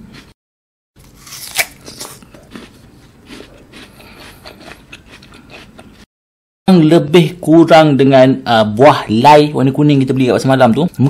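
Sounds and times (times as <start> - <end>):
crisp bite into pear: 1.0 - 3.9
crunching chews: 1.0 - 6.0.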